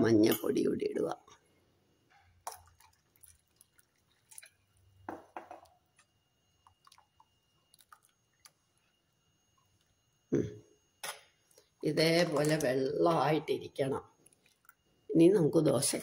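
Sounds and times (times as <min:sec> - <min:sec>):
spoon stirring batter: 0:02.4 - 0:10.2, 0:14.1 - 0:14.9.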